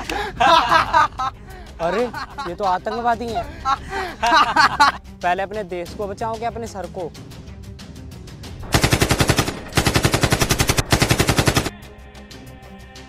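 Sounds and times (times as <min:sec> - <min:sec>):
machine-gun fire bursts: 0:08.7 - 0:11.7.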